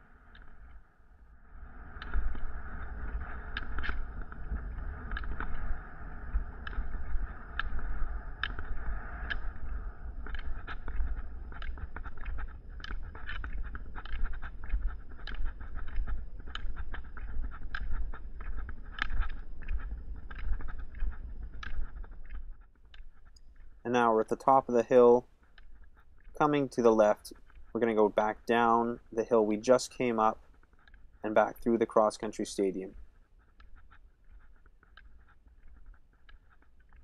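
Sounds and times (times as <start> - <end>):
sharp clicks: 1.9 - 37.0.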